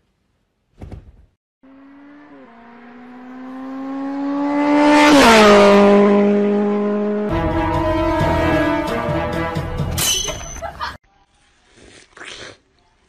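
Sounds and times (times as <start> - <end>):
car passing by: 1.7 - 9.7.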